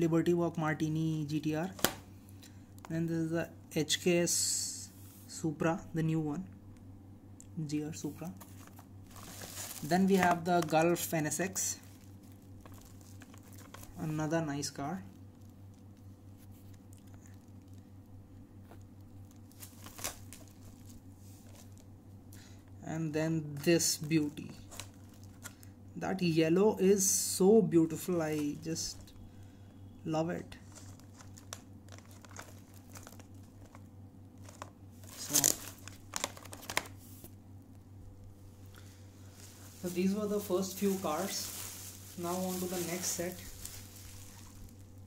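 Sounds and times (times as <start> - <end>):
steady low hum: 0.0 - 45.0
plastic blister pack crinkling: 8.2 - 17.9, 18.7 - 21.9, 23.8 - 25.7, 28.3 - 29.4, 30.6 - 37.3, 38.2 - 45.0.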